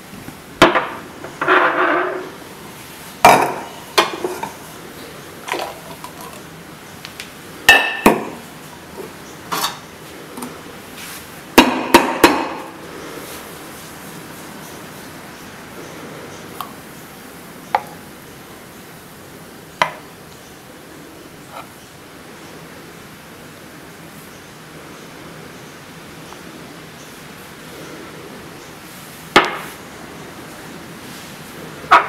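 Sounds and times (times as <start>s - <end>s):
coffee cups knocking on counter: 3.2s - 4.3s, 7.7s - 8.4s.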